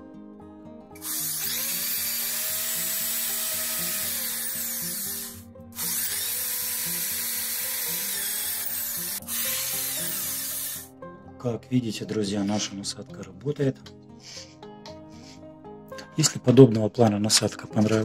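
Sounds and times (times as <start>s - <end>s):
electric drill motor whine: 1.0s - 10.9s.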